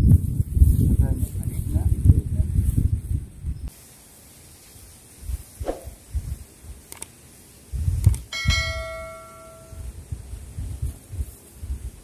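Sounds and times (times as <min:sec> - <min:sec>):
low microphone rumbles: 0:00.0 - 0:03.7
faint clicks: 0:06.9 - 0:07.1
bright bell-like chime: 0:08.3 - 0:09.9.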